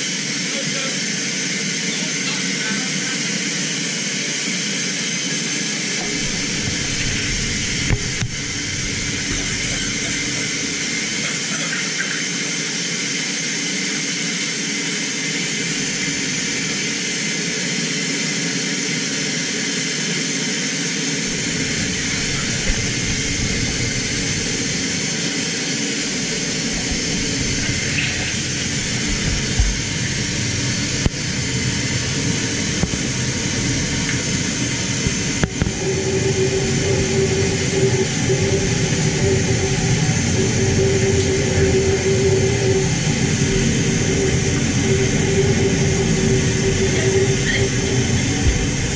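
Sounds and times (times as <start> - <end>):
deep rumble: 6.0 - 11.2, 21.2 - 48.9
air rushing through vents: 6.0 - 11.4, 21.2 - 48.9.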